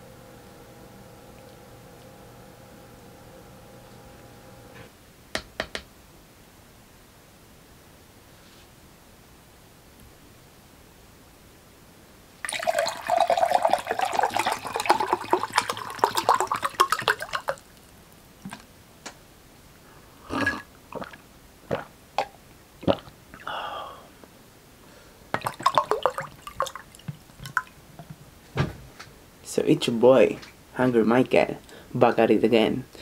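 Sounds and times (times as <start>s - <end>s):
clicks and taps: 5.3s - 5.9s
water pouring into mug: 12.4s - 17.9s, 25.4s - 27.7s.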